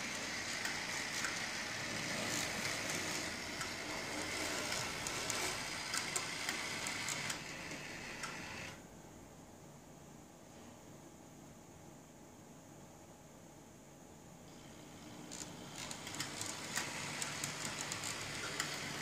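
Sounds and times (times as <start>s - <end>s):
electric motor whir: 0.0s - 8.8s, 15.3s - 19.0s
wheels clicking on rails: 0.0s - 8.8s, 14.5s - 19.0s.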